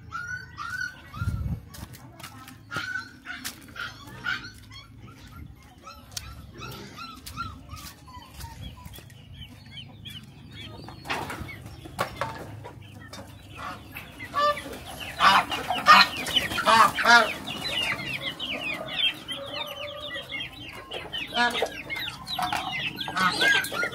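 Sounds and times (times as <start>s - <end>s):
chickens clucking: 0.0s - 23.9s
loud chicken calls: 9.8s - 23.9s.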